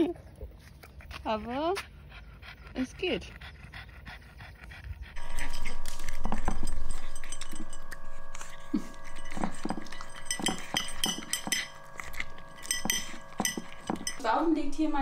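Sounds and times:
dog crunching kibble: 5.2 - 14.7
kibble clinking against bowl: 5.2 - 15.0.

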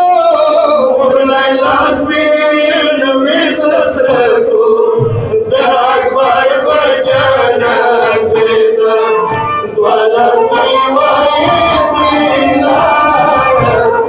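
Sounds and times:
musical accompaniment: 0.0 - 14.0
low thumps: 4.0 - 14.0.

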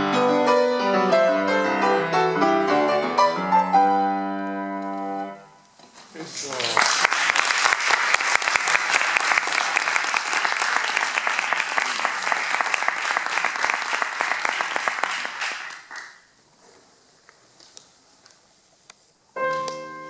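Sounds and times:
audience applauding: 6.2 - 16.3.

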